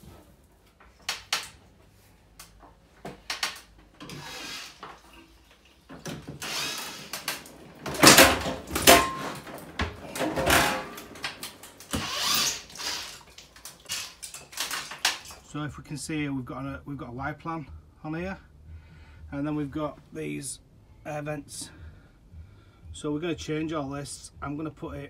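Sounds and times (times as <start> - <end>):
boiler being dismantled clattering: 5.9 - 15.5.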